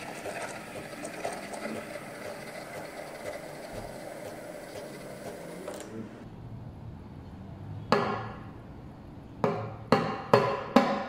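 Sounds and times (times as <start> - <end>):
steam wand hissing in milk: 0.0 - 6.2.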